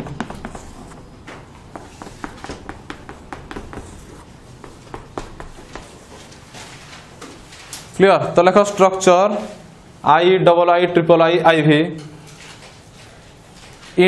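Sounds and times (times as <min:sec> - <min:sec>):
chalk tapping and scraping on blackboard: 0:00.0 - 0:06.9.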